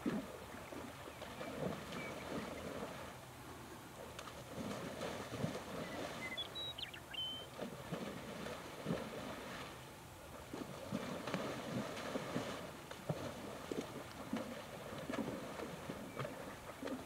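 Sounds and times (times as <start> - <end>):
water sloshing and splashing: 0.0 - 3.3, 4.0 - 6.7, 7.3 - 17.0
high bird chirps: 6.2 - 7.5.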